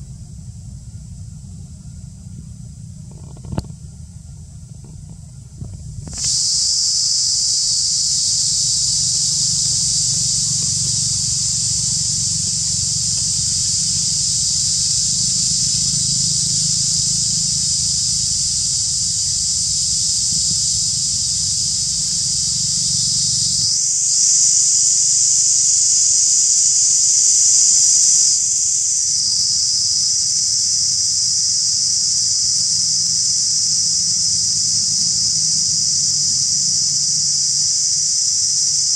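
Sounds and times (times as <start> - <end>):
low rumble: 0.0 - 6.4
insects buzzing drone: 0.0 - 38.9.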